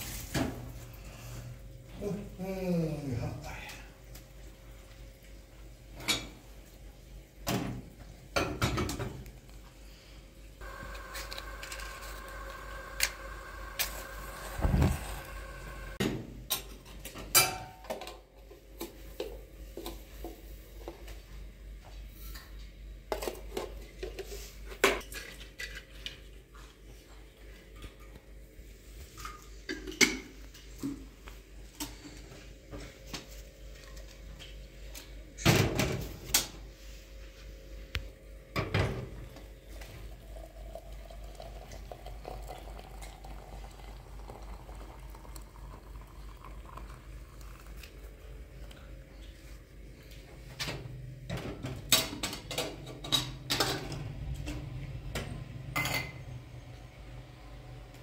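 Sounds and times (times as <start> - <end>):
tableware clinking and clattering: 55.8 - 56.2.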